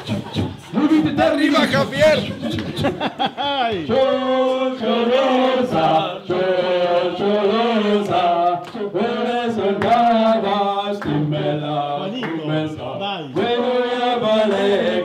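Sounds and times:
group of people chanting: 0:03.9 - 0:15.0.

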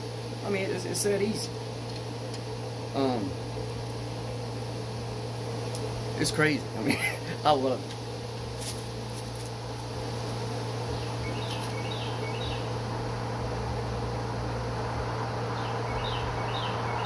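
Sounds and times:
constant low hum: 0:00.0 - 0:17.0
broad hiss: 0:02.9 - 0:16.3
bird chirping: 0:10.9 - 0:12.7, 0:15.5 - 0:17.0.

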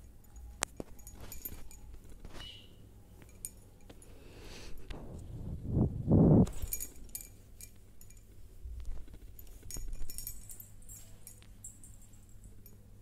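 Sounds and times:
metallic clinks and jingles: 0:00.0 - 0:02.5, 0:03.1 - 0:04.9, 0:06.5 - 0:13.0
low rumble: 0:04.9 - 0:07.0.

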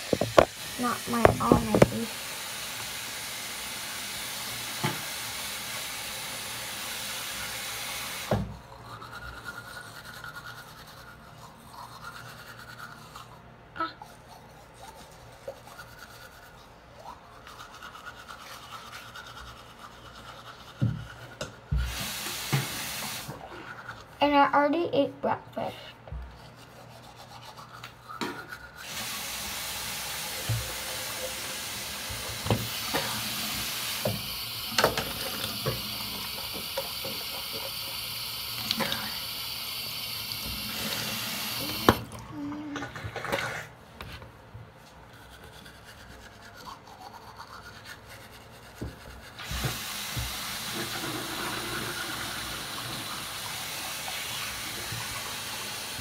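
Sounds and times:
tap running into sink: 0:00.0 - 0:02.1, 0:21.7 - 0:23.4, 0:30.3 - 0:31.0, 0:32.0 - 0:37.8, 0:40.3 - 0:42.1, 0:49.4 - 0:53.2
toothbrush scraping: 0:08.7 - 0:13.4, 0:14.0 - 0:21.6, 0:23.4 - 0:24.2, 0:26.3 - 0:29.0, 0:45.0 - 0:49.7.

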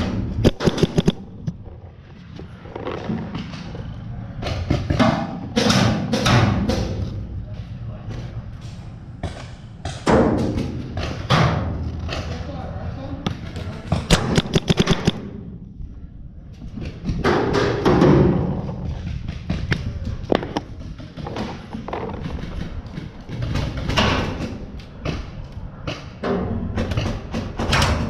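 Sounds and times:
paintball markers firing: 0:00.4 - 0:01.6, 0:13.9 - 0:15.3.

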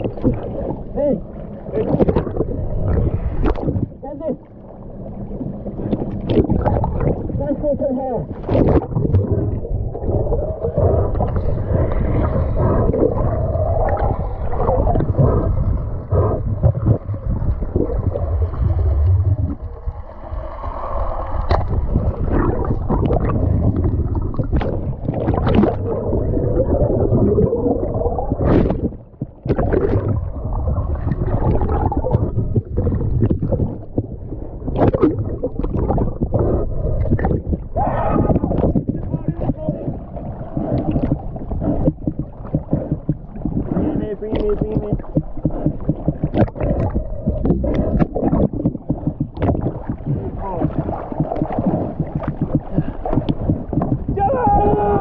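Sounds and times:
underwater gurgling and bubbling: 0:00.0 - 0:55.0
knocks and thuds: 0:40.8 - 0:43.7, 0:44.4 - 0:54.8.

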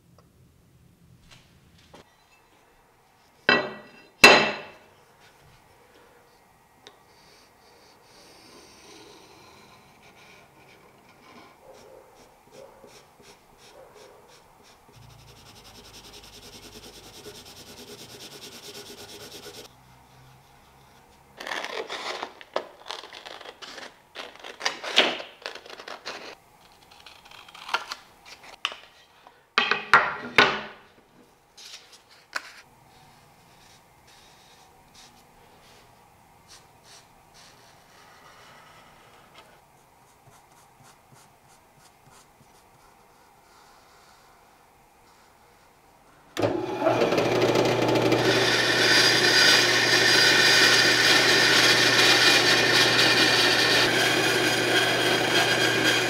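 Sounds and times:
pencil scratching on paper: 0:10.0 - 0:19.7, 0:36.5 - 0:44.3.

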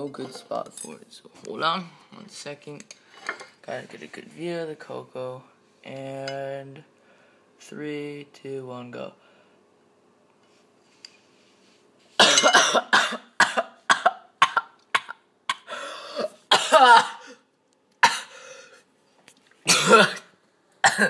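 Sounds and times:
man coughing hard: 0:12.2 - 0:17.4, 0:18.0 - 0:18.4, 0:19.7 - 0:21.0.

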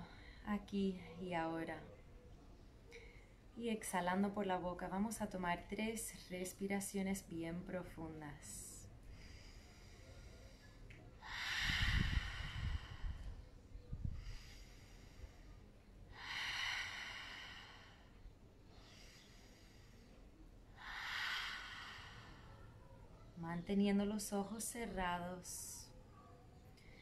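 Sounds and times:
woman breathing deeply: 0:09.0 - 0:23.3.

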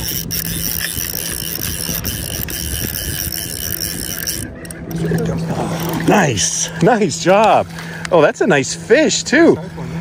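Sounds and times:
fly reel clicker ratcheting: 0:00.0 - 0:06.2.

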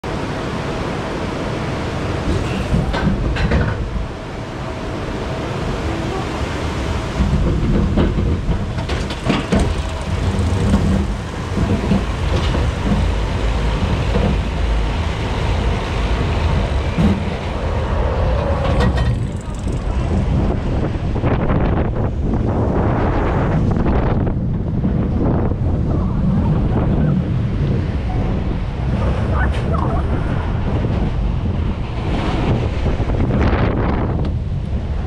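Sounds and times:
roller coaster wheels rumbling: 0:00.0 - 0:35.0
sharp clacks and clunks: 0:07.2 - 0:14.8, 0:18.6 - 0:20.4.

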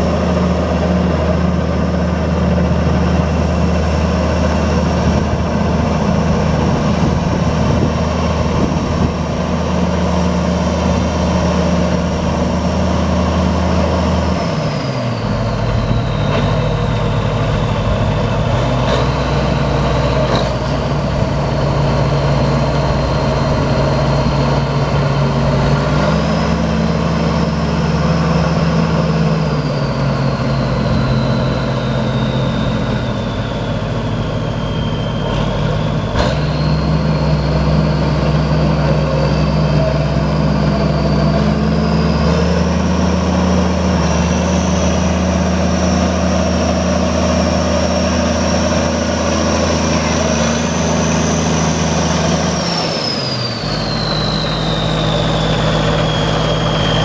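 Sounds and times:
tractor diesel engine running: 0:00.0 - 0:57.0
high whine: 0:26.5 - 0:57.0.

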